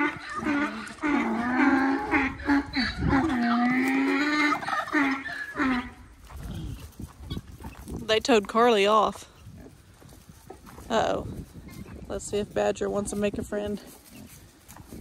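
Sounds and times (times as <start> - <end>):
donkey braying: 0.0 - 7.7.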